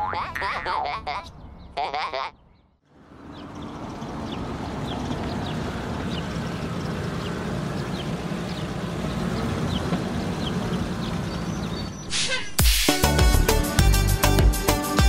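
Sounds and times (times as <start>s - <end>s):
small birds chirping: 0.4s - 12.4s
cartoon truck engine running: 2.9s - 12.1s.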